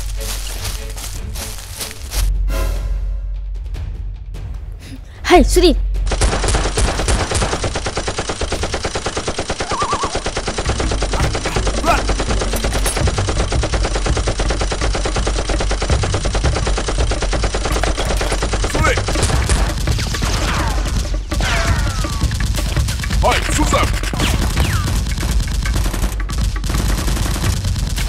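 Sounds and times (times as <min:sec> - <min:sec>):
rapid automatic gunfire: 0:06.1 - 0:28.0.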